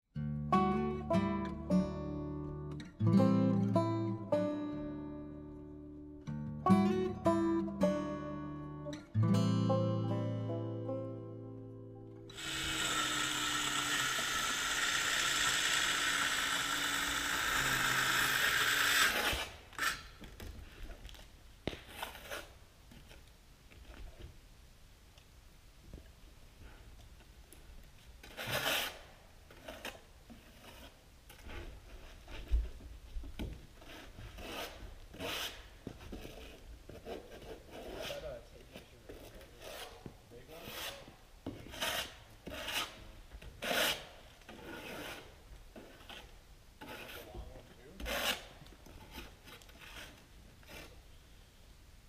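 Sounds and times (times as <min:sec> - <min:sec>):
rasping scraping strokes: 0:12.3 - 0:20.2, 0:28.2 - 0:32.6, 0:33.8 - 0:51.0.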